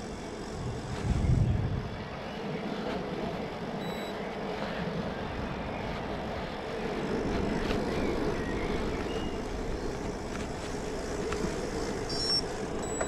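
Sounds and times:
wind on microphone: 0.0s - 3.7s
bicycle tyre hum: 0.0s - 13.0s.

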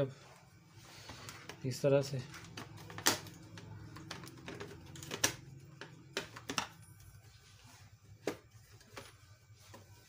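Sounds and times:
plastic cover clicks and knocks: 2.5s - 6.8s.

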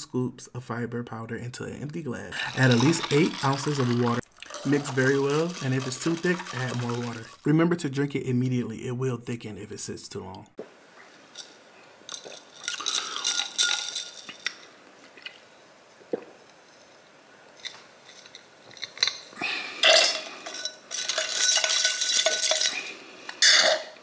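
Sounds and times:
glass straw stirring ice in glass: 2.4s - 7.5s, 12.1s - 14.6s, 20.4s - 22.9s.

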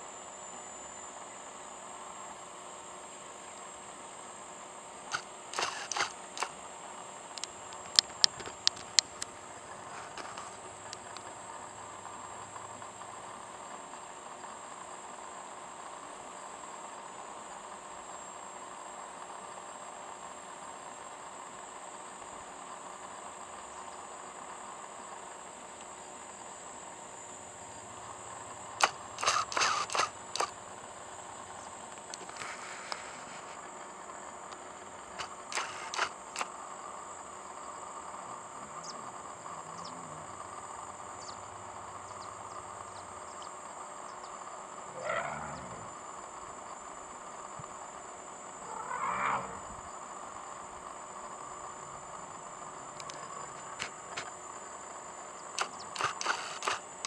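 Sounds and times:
background hiss: 0.0s - 57.0s
crickets chirring: 0.0s - 57.0s
faint high whine: 0.0s - 57.0s
sharp camera clicks: 5.1s - 6.6s, 28.8s - 30.6s, 35.2s - 36.6s, 55.6s - 57.0s.

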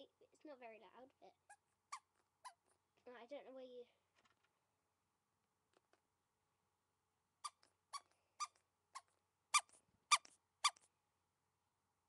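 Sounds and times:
squeeze toy squeaking: 1.5s - 2.7s, 7.4s - 10.9s.

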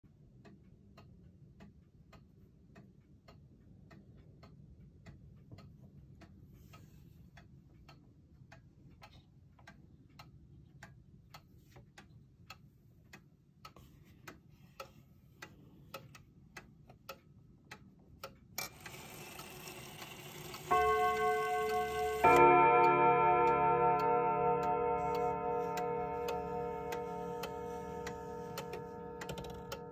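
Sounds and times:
wall clock ticking: 0.0s - 29.9s
clock hand handling noise: 18.6s - 29.9s.

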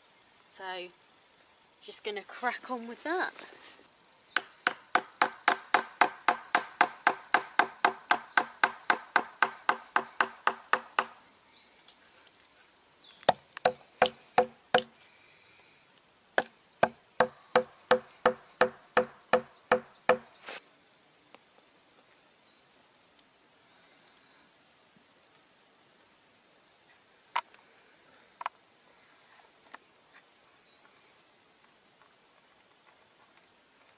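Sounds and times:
wooden mallet striking chisel: 4.4s - 11.1s, 13.3s - 14.9s, 16.4s - 20.2s.

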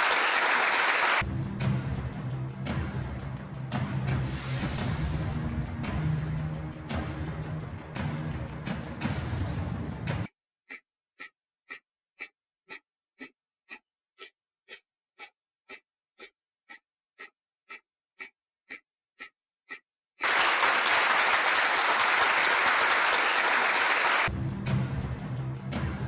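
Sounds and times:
applause: 0.0s - 1.2s, 20.2s - 24.3s
clock ticking: 9.0s - 19.9s.

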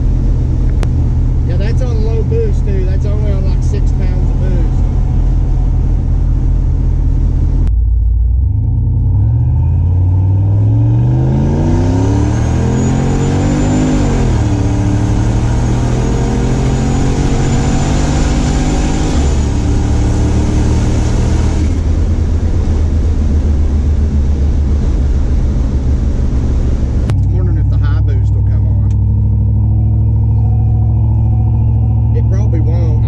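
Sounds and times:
car engine accelerating: 0.0s - 33.0s
turbo whistle: 29.6s - 33.0s.

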